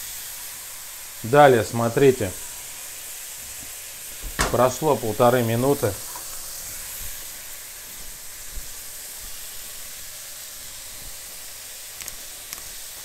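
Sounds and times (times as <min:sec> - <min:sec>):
seafood sizzling in hot oil: 0:00.0 - 0:13.0.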